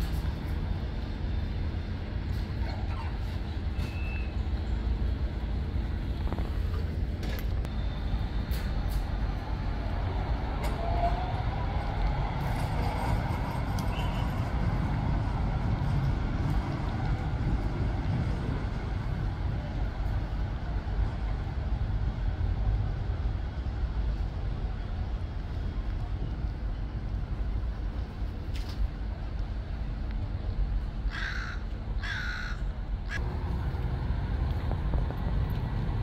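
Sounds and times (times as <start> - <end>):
tram motor whine: 0.0 - 2.6, 3.4 - 24.3
low rumble: 33.2 - 36.0.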